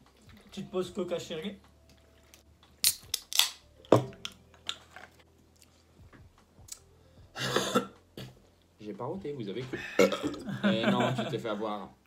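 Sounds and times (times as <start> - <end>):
person breathing: 6.9 - 7.4.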